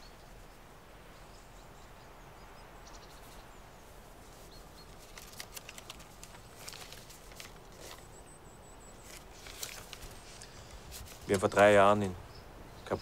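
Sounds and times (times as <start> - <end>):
faint bird chirp: 0.0 - 13.0
small clicks and rustles: 4.2 - 8.2, 9.0 - 11.6.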